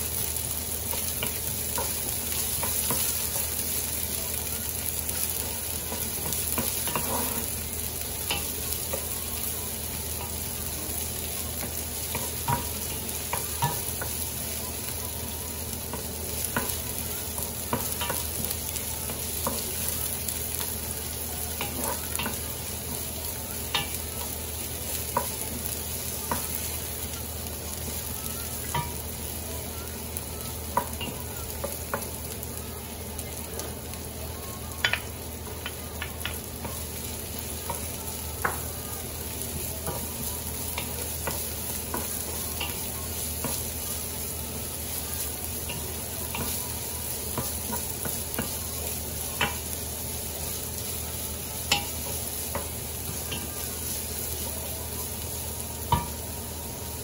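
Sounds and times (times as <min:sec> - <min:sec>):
onion sizzling in hot oil: 0:00.0 - 0:57.0
wooden spoon scraping a pan: 0:05.8 - 0:07.6.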